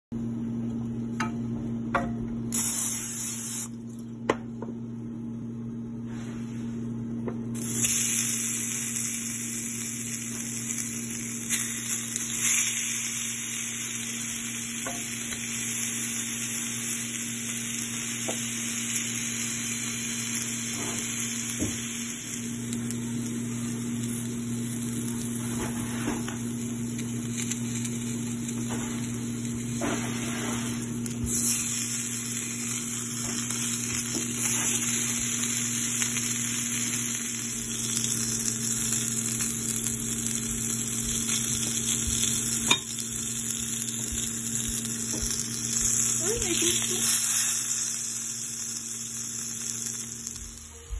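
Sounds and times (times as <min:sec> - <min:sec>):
steady low hum: 0:00.1 - 0:50.9
patties sizzling in a pan: 0:07.6 - 0:50.9.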